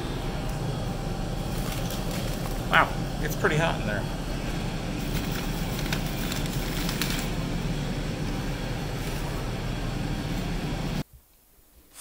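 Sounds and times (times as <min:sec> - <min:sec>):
plastic bag rustling: 0:01.3 - 0:02.8, 0:05.0 - 0:07.4.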